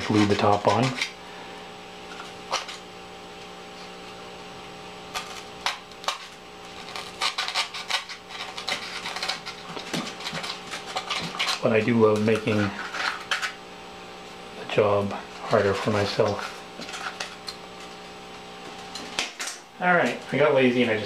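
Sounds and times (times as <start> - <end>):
craft knife cutting foam board: 0.0 - 1.2, 5.1 - 13.5
steady low hum: 0.0 - 21.0.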